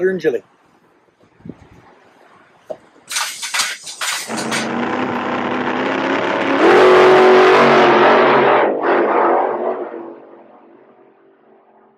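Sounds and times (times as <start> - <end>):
car engine revving: 3.1 - 11.6.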